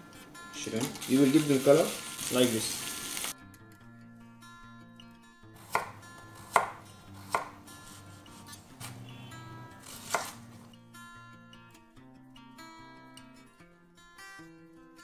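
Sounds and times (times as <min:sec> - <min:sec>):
soft background music: 0:00.0 - 0:14.0
knife chopping on wooden board: 0:05.6 - 0:07.6, 0:09.8 - 0:10.4.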